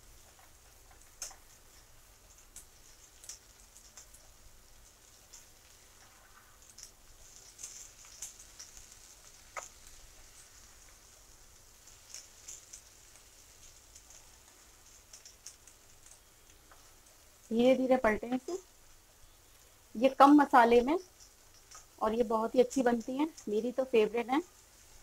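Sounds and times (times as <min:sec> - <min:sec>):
frying oil crackling: 0:00.0 - 0:25.0
spatula ticking in pan: 0:06.9 - 0:17.2.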